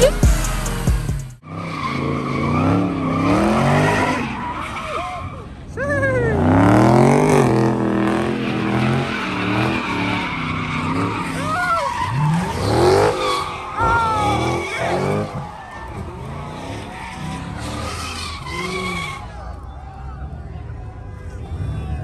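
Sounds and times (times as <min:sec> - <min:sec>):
car engines revving: 0:00.0 - 0:22.0
tyres screeching: 0:01.4 - 0:19.8.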